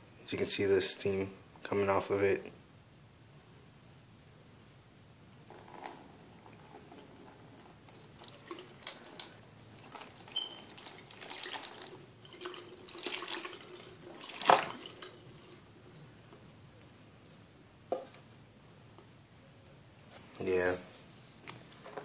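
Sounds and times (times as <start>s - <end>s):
water splashing and dripping: 8.0s - 15.2s.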